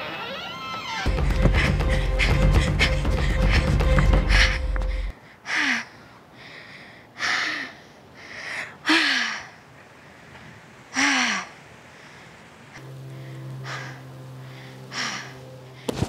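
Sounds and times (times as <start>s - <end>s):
background music: 1.1s - 5.1s
woman panting: 1.1s - 9.8s, 10.9s - 12.4s, 13.1s - 16.0s.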